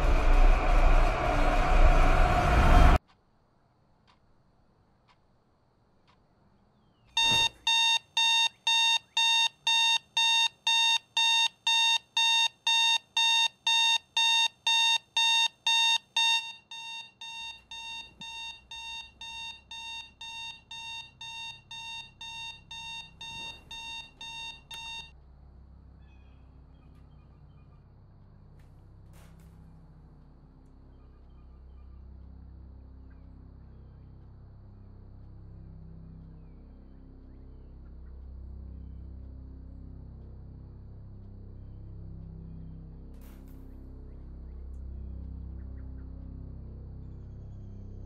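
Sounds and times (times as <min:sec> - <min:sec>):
electronic alarm beeping: 0:07.2 - 0:25.1.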